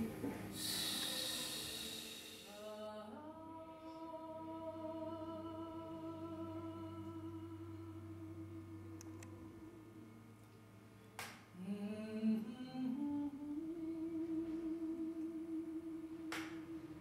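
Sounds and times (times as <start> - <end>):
breathy hiss: 0.0 - 3.0
person singing sustained note: 0.0 - 10.2, 11.6 - 17.0.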